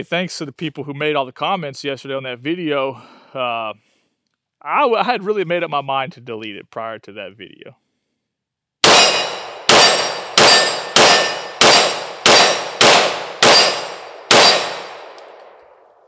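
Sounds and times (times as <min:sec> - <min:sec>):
pistol shots: 0:08.8 - 0:16.0.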